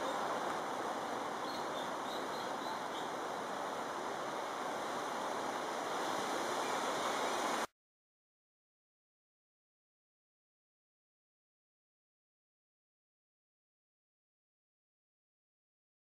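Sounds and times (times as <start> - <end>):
rushing outdoor background noise: 0.0 - 7.7
faint bird chirps: 1.4 - 3.2.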